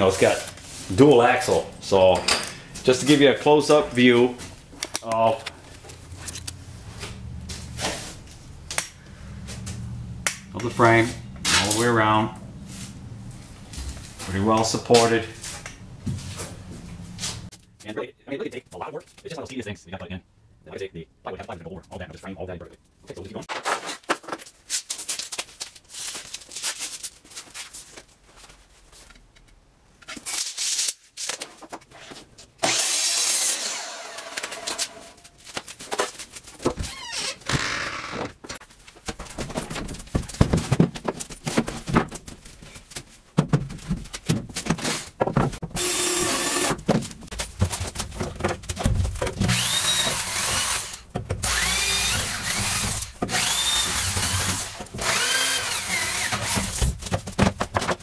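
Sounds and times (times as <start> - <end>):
knocks and clatter: 38.2 - 45.8, 46.8 - 49.6, 56.4 - 58.0
cordless drill whining: 45.8 - 46.8, 49.5 - 56.8.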